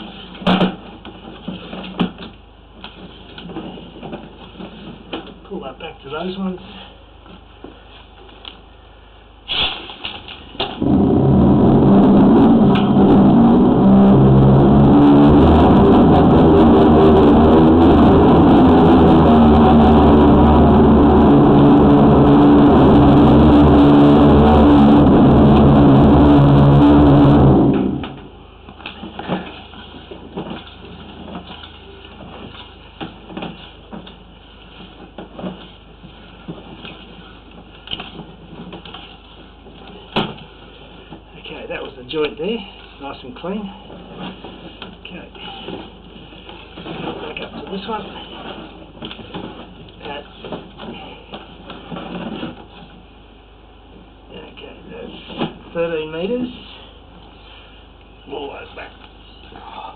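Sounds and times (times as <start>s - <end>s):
pump drone: 10.8s - 28.4s.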